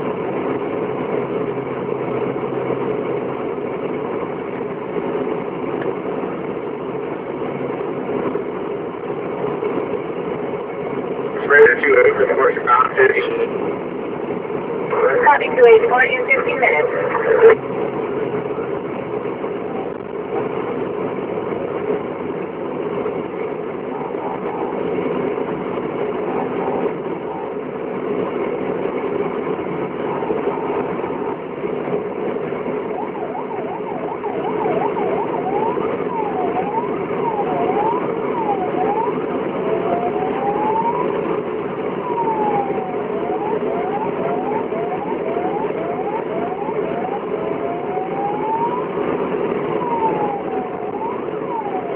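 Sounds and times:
road noise: 0.0 - 51.9
vehicle engine drone: 0.0 - 51.9
siren wailing and yelping: 14.9 - 17.6, 23.8 - 27.8, 32.2 - 51.9.

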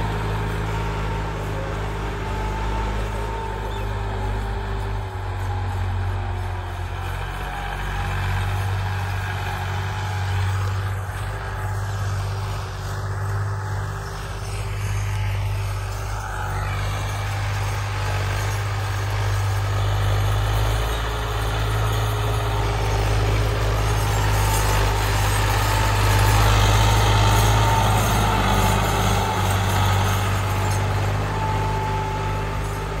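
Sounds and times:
tractor diesel engine running: 0.0 - 33.0.

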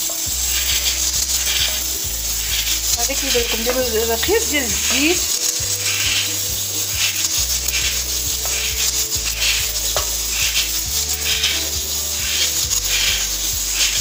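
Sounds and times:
food sizzling in a frying pan: 0.0 - 14.0
wooden spoon stirring: 0.0 - 14.0.

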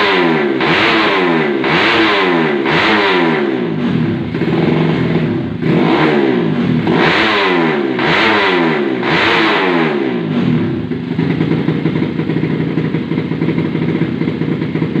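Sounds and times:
motorcycle engine revving: 0.0 - 15.0
motorcycle engine idling: 2.5 - 7.0, 9.9 - 15.0.

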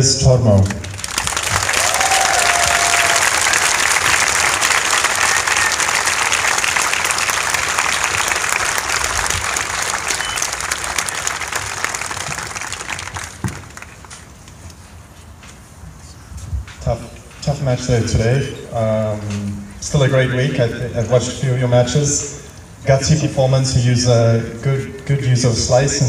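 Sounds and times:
crowd applauding: 0.6 - 14.2.

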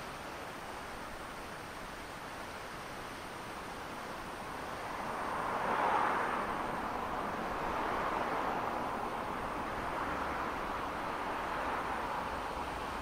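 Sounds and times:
vehicle passing: 4.8 - 9.3.

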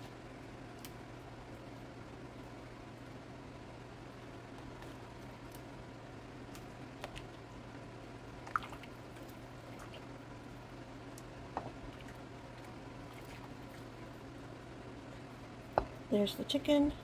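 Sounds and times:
low steady hum: 0.0 - 17.0
soft wet squishes: 8.4 - 14.4.

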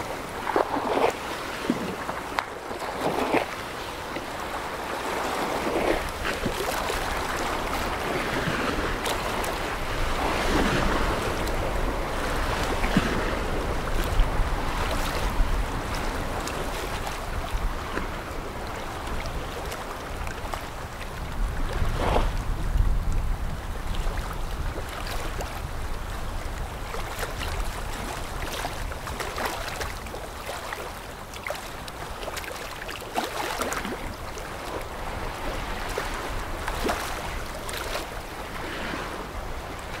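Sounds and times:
ship wake water splashing: 0.0 - 40.0
wind on microphone: 4.4 - 30.6.

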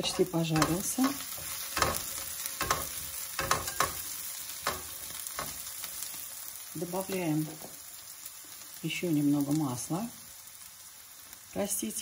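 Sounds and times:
metal spatula scraping pan: 0.0 - 5.8
onions sizzling in oil: 0.0 - 12.0.

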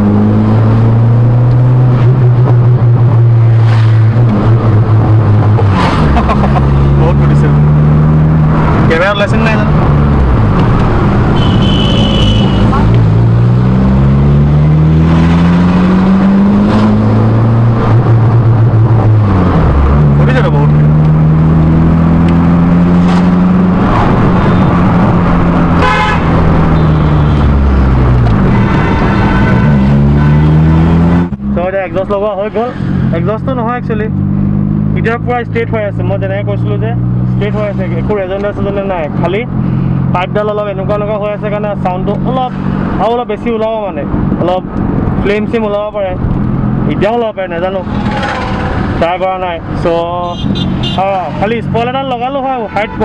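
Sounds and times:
car engine through exhaust: 0.0 - 43.1, 46.1 - 52.1
vehicle horn honking: 11.3 - 12.9, 25.8 - 27.5, 28.4 - 30.7, 50.2 - 51.2, 52.6 - 53.0.

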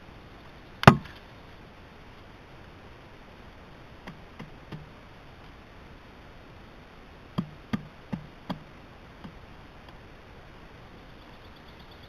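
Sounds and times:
woodpecker knocking on log: 4.0 - 4.9, 7.4 - 9.4.

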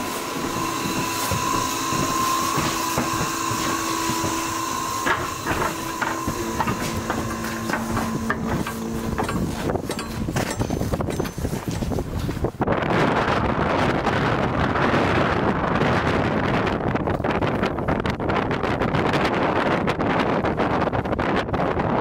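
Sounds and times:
lab equipment hum: 0.0 - 12.1
footsteps on rocky gravel: 0.0 - 12.6
wind on microphone: 0.0 - 22.0.

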